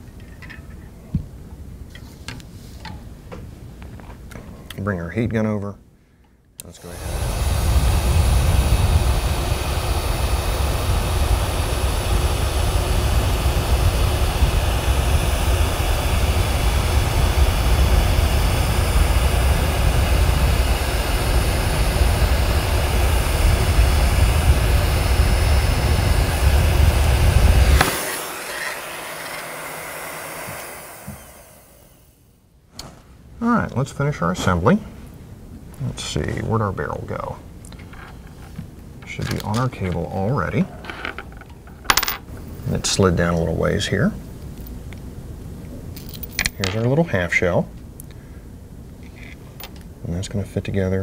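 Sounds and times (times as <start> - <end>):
heat gun blowing hot air: 6.8 - 32.3.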